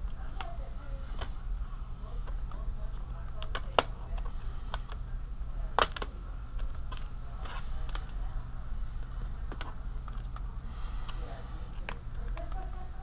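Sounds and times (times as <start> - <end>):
steady low hum: 0.0 - 13.0
plastic clips snapping: 3.4 - 5.0, 5.8 - 7.0.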